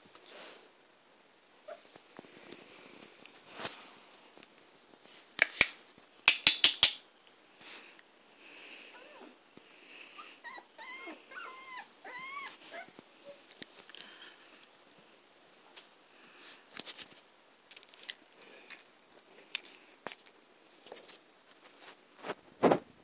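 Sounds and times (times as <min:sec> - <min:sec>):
dogs whining: 0:10.2 - 0:13.4.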